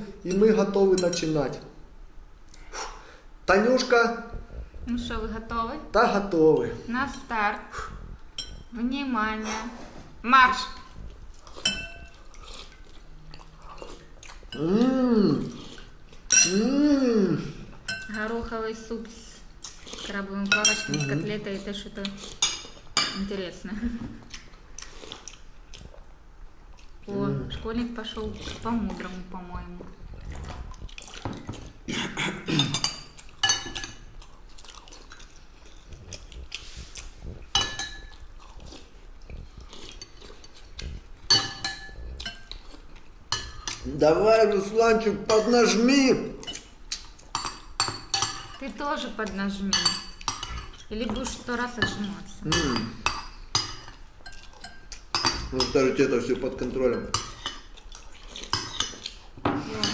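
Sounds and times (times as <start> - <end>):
spoons clinking against bowls: 0.3 - 1.3, 8.4 - 8.7, 11.6 - 12.2, 16.3 - 16.6, 17.9 - 18.3, 20.5 - 21.2, 22.4 - 23.3, 32.6 - 34.1, 37.5 - 38.2, 41.3 - 42.6, 43.3 - 43.8, 45.3 - 46.7, 47.3 - 48.7, 49.7 - 57.8, 58.4 - 59.9
chewing: 10.7 - 16.3, 19.3 - 21.1, 24.2 - 27.1, 28.1 - 31.9, 32.6 - 43.9, 46.4 - 48.6, 52.3 - 55.5, 56.4 - 59.9
spoon clinking on bowl: 11.6 - 12.2, 16.3 - 16.6, 32.7 - 34.0, 37.5 - 38.2, 41.3 - 42.5
man humming mmm while eating: 14.6 - 15.8, 16.4 - 17.8.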